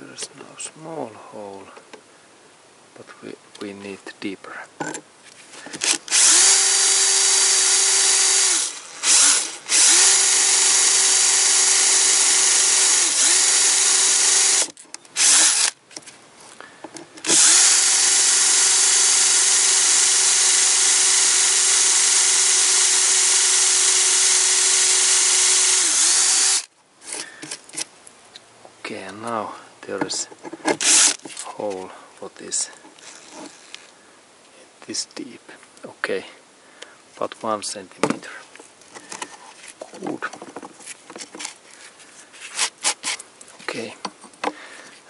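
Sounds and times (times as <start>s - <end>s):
cordless drill motor whine: 5.8s - 15.7s, 17.2s - 26.7s, 30.8s - 31.2s.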